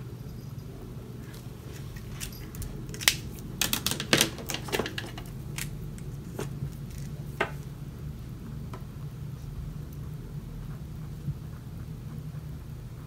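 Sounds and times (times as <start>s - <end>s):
steady low hum: 0.0s - 13.0s
pens clicking on desk: 2.2s - 5.7s.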